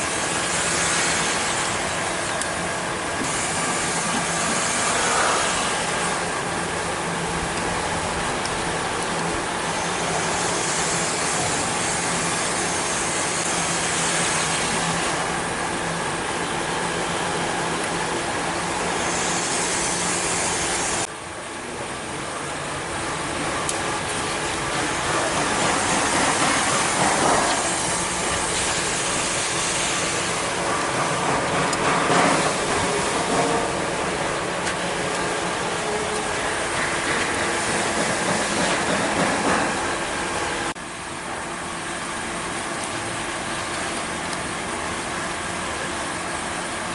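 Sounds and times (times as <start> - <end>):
brake lathe humming: 0.0 - 46.9
high hiss: 9.6 - 15.4, 18.4 - 21.1, 24.8 - 31.3.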